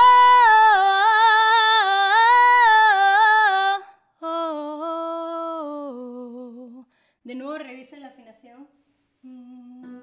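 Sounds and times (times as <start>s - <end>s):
woman singing a cappella: 0.0s - 7.0s, 9.2s - 10.0s.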